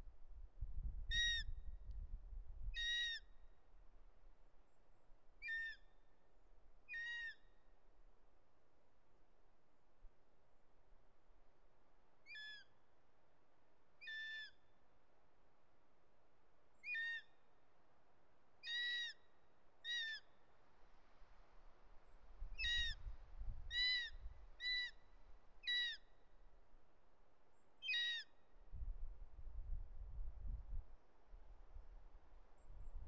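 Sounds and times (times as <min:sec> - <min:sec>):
young eagle begging screams: 0:01.1 - 0:01.5, 0:02.8 - 0:03.2, 0:06.9 - 0:07.4, 0:14.0 - 0:14.6, 0:16.8 - 0:17.3, 0:18.6 - 0:19.2, 0:19.8 - 0:20.3, 0:22.6 - 0:23.0, 0:23.7 - 0:25.0, 0:25.6 - 0:26.0, 0:27.8 - 0:28.3.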